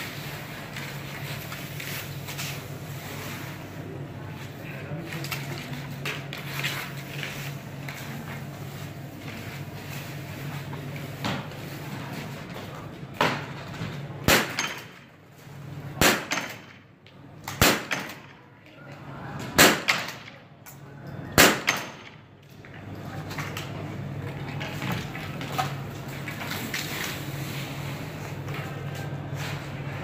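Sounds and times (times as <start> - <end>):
rifle shots: 14.3 - 14.8, 16.0 - 16.6, 17.6 - 18.2, 19.6 - 20.2, 21.4 - 22.0.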